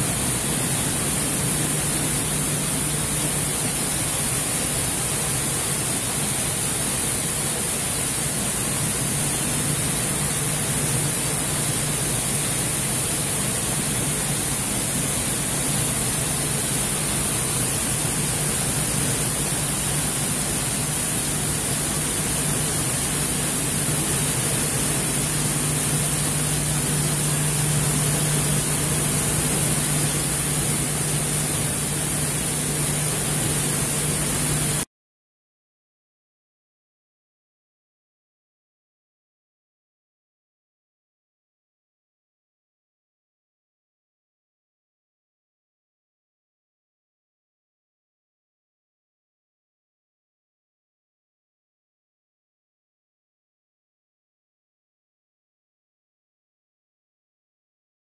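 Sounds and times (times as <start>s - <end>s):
constant low hum: 0.0s - 34.8s
dust extractor fan rushing air: 0.0s - 34.9s.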